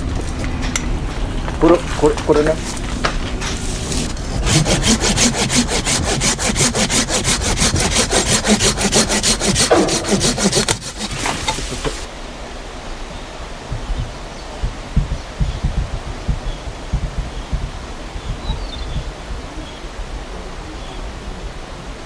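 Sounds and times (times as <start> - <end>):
hand saw cutting branch: 3.5 - 12.1, 13.7 - 19.1.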